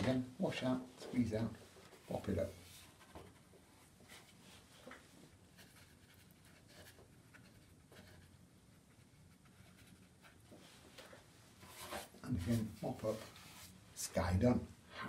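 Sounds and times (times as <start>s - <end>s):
brush dabbing on wet paper: 4.1s - 13.8s.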